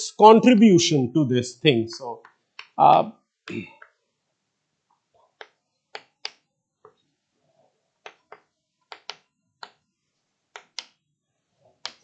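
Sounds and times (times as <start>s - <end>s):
chalk tapping on blackboard: 5.4s - 7.0s, 8.0s - 9.8s, 10.5s - 11.0s, 11.8s - 12.0s.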